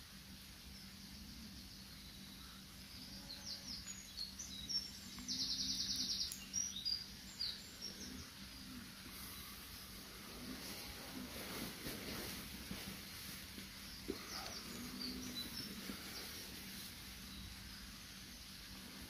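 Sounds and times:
small birds chirping and whistling: 0.7 - 19.0
bird trill: 2.0 - 8.7.

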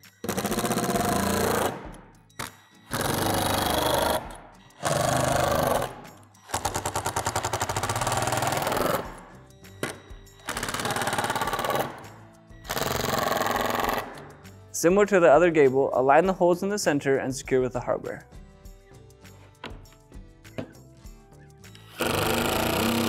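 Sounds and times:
background music: 0.0 - 23.0
impact driver driving screws: 0.2 - 9.2, 9.8 - 12.0, 12.7 - 14.3, 21.8 - 23.0.

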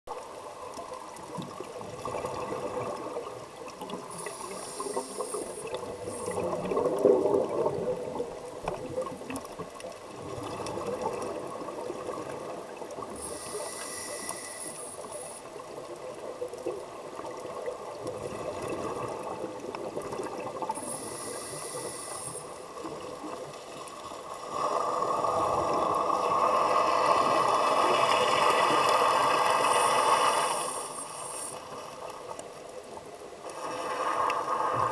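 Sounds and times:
muffled underwater noise: 1.9 - 9.7, 10.3 - 23.6
scuba regulator hiss: 4.1 - 6.6, 13.1 - 15.5, 20.7 - 22.7, 29.0 - 31.6.

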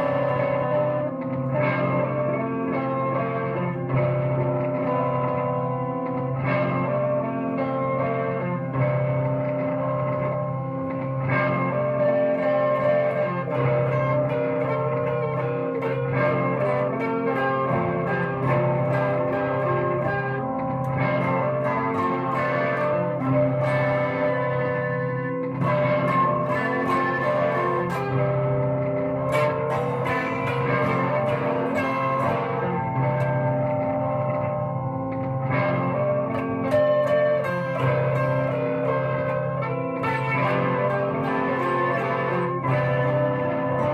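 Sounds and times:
guitar music: 0.0 - 43.9.

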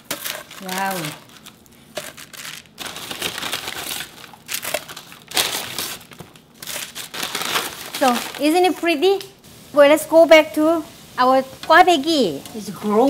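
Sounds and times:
paper crinkling and rustling: 0.0 - 8.8.

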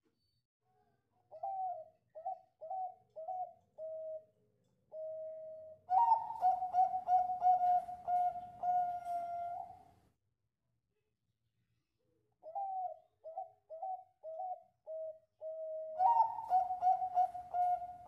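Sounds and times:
dove cooing: 1.3 - 4.3, 4.9 - 9.9, 12.4 - 18.0.

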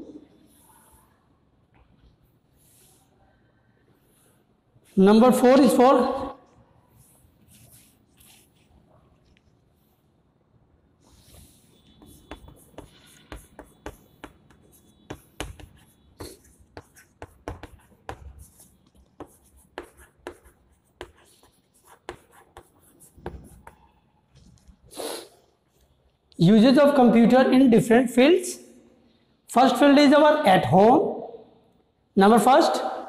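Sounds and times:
chalk writing on a chalkboard: 2.4 - 3.1, 6.9 - 8.8, 11.0 - 24.1.

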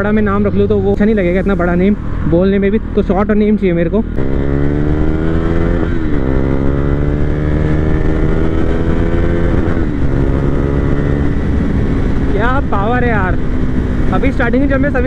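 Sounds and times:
motorcycle engine accelerating: 0.0 - 15.0.

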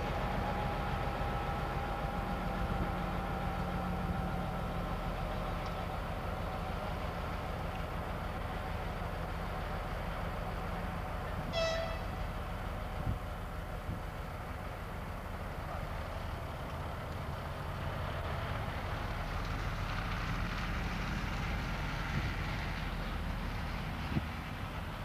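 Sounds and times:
diesel locomotive engine running: 0.0 - 25.0
train horn toot: 11.5 - 12.2.

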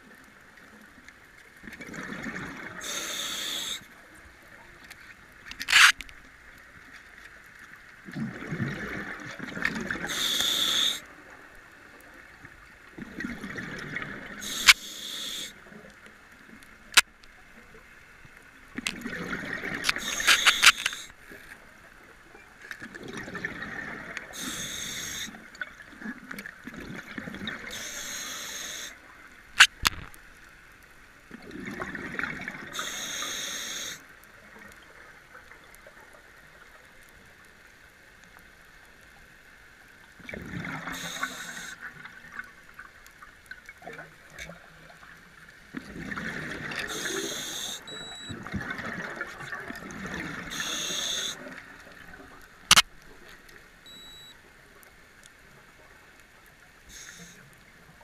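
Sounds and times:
scuba regulator breathing bubbles: 2.0 - 3.8, 9.8 - 11.0, 13.4 - 15.5, 23.2 - 25.4, 27.7 - 29.0, 31.6 - 34.0, 40.6 - 41.8, 46.0 - 49.2, 50.0 - 51.5
sharp clicks: 19.9 - 21.1, 52.7 - 53.0.

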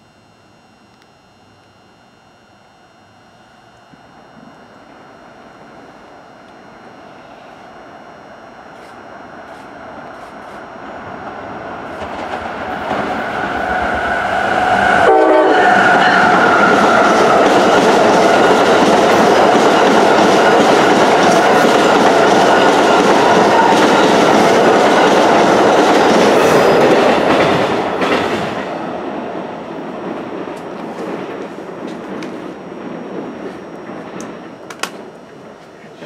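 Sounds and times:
train rumble and rail clatter: 8.8 - 36.0
train horn: 14.8 - 17.3.

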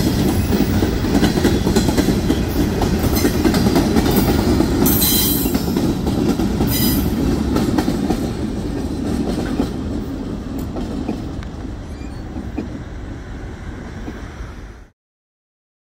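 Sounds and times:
train cars rumbling on rails: 0.0 - 14.9.

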